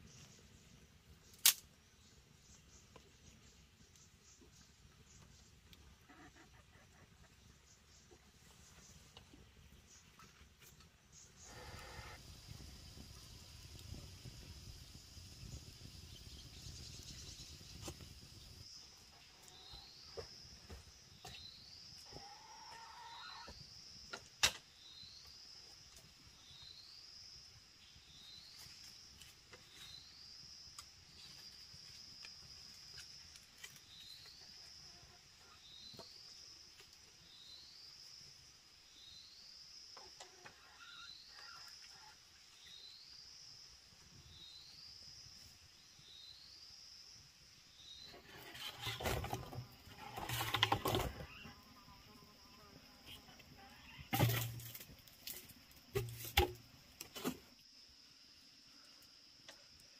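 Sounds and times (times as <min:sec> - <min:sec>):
sharp click: 0:01.4 - 0:01.7.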